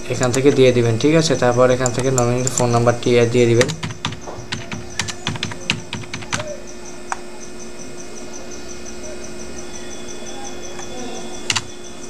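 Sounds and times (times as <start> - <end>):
faint hum: 0.0 - 12.0
computer keyboard keystrokes: 0.1 - 0.6, 1.7 - 7.2, 11.5 - 11.7.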